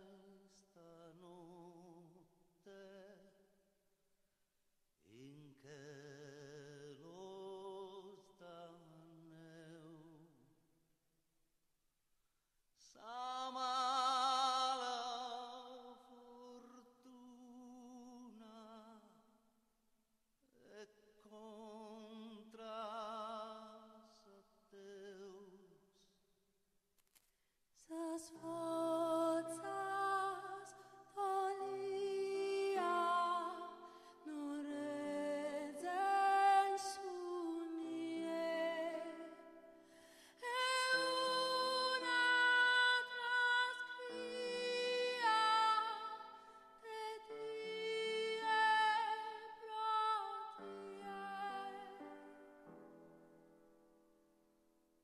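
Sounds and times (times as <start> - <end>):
person singing with vibrato: 0.0 - 2.0, 27.8 - 52.4
man singing with vibrato: 0.0 - 3.4, 5.1 - 10.4, 12.8 - 19.1, 20.5 - 25.8, 31.2 - 39.3
woman singing: 27.8 - 52.4.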